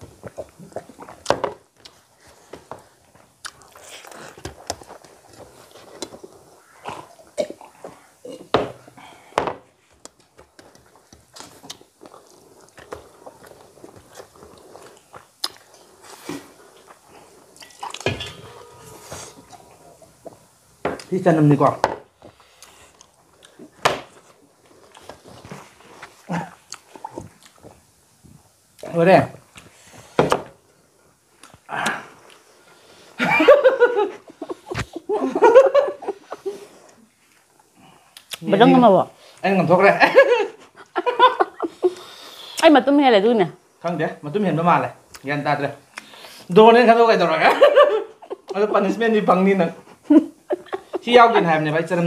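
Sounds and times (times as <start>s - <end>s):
wet chewing: 0.2s - 7.8s, 9.9s - 18.1s, 24.6s - 27.9s
people laughing: 33.2s - 36.8s, 40.0s - 42.0s, 47.4s - 48.9s, 50.1s - 52.0s.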